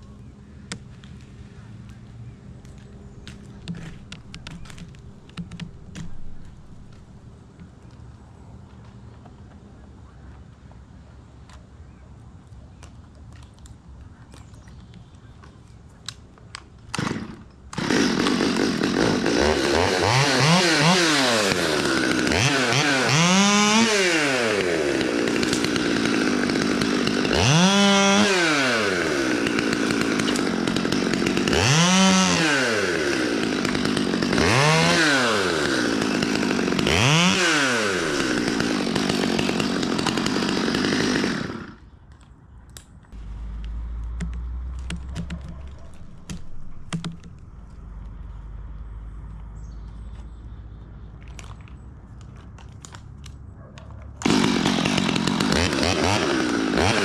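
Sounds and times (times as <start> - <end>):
chainsaw revving: 17.0 - 41.8, 54.2 - 57.0.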